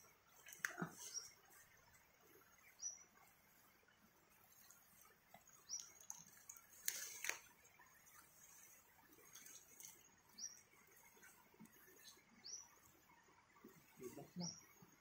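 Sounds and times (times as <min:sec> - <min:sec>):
ferns rustling and snapping: 0:05.8 - 0:07.5.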